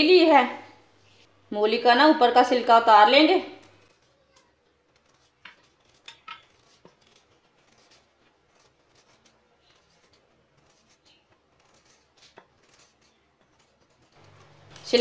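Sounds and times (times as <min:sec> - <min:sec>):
knife scraping radish skin: 0:03.5 - 0:15.0.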